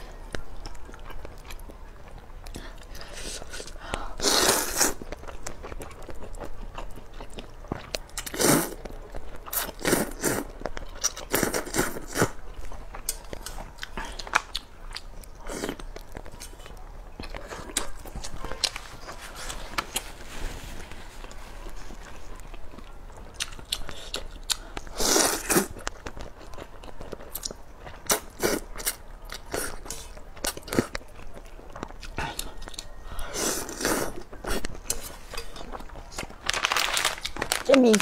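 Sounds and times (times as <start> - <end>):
wet chewing: 21.2 - 38.0.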